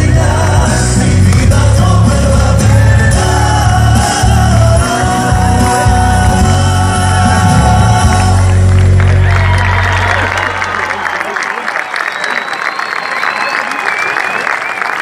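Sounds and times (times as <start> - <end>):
folk song singing over loudspeakers: 0.0 - 9.0
applause and cheering: 7.0 - 15.0.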